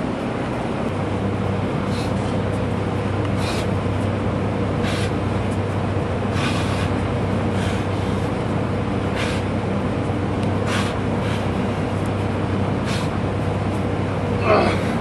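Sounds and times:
gym fans droning: 0:00.0 - 0:15.0
short hissing breaths: 0:03.4 - 0:03.7, 0:04.8 - 0:05.2, 0:06.3 - 0:07.0, 0:07.6 - 0:08.3, 0:09.1 - 0:09.5, 0:10.6 - 0:11.6, 0:12.8 - 0:13.2.

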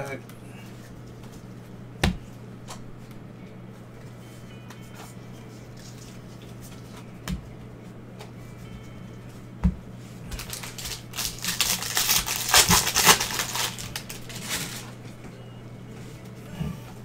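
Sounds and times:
plastic wrapper tearing and crinkling: 0:10.4 - 0:15.0.

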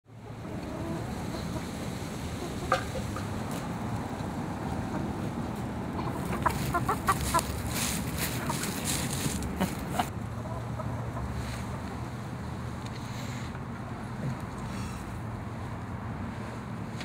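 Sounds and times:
chickens clucking: 0:00.2 - 0:12.2.

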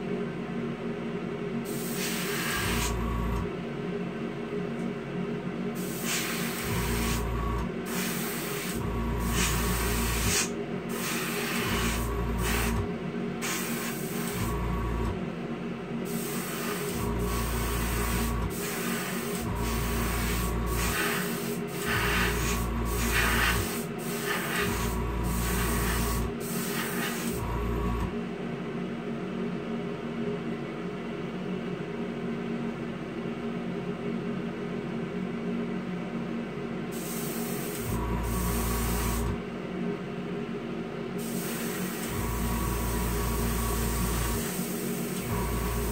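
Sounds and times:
compressor hum: 0:00.0 - 0:45.9
exhaust fan: 0:00.0 - 0:45.9
airbrush spraying air hiss: 0:01.7 - 0:03.0, 0:05.8 - 0:07.3, 0:07.9 - 0:12.8, 0:13.4 - 0:14.5, 0:16.0 - 0:27.4, 0:36.9 - 0:39.4, 0:41.2 - 0:45.9.

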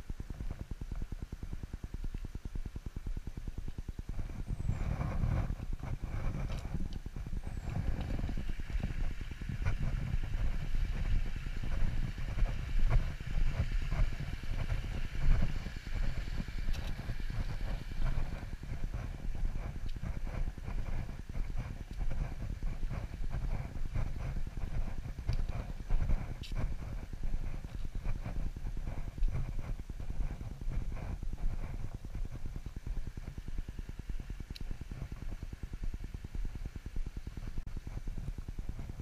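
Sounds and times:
low fluctuating rumble: 0:00.0 - 0:39.0
footsteps on dirt path: 0:03.7 - 0:33.4.

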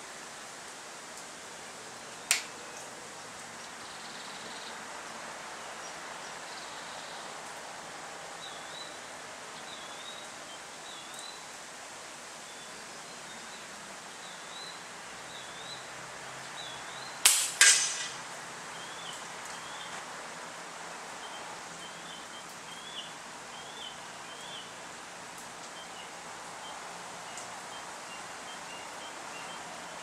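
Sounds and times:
air rifle firing crack: 0:17.3 - 0:18.3.

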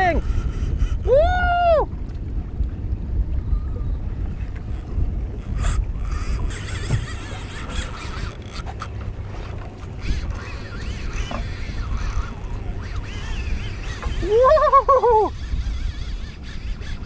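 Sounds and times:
reel and line squealing: 0:00.0 - 0:01.4, 0:03.5 - 0:17.0
low rumble of wind and boat: 0:00.0 - 0:17.0
fishing reel knocks: 0:04.7 - 0:08.9, 0:10.0 - 0:14.3.

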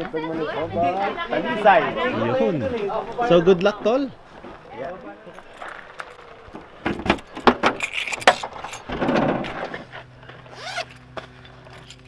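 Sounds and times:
car keys jangling: 0:07.0 - 0:08.9, 0:10.7 - 0:12.0.

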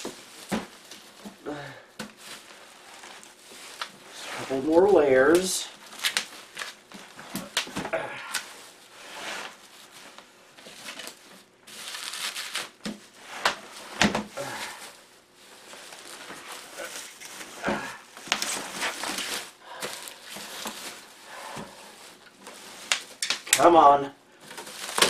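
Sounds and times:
bubble wrap crinkling: 0:00.0 - 0:25.0
bubble wrap snaps: 0:05.3 - 0:08.6, 0:10.9 - 0:13.6, 0:22.0 - 0:23.7, 0:24.5 - 0:25.0.

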